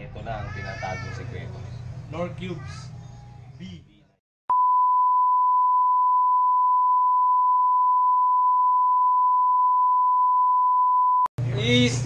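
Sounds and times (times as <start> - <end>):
censor beep tone: 4.5 - 11.3.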